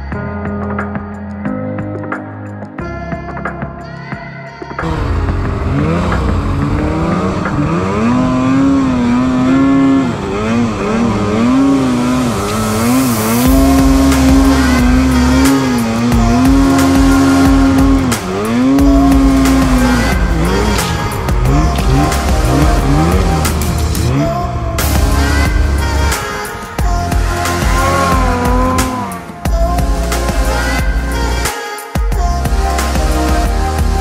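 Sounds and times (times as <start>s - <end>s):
snowmobile engine revving: 4.8s - 31.5s.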